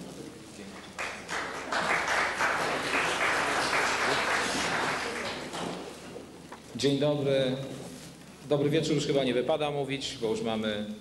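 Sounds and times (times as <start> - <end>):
audience applauding: 0.9 - 5.8.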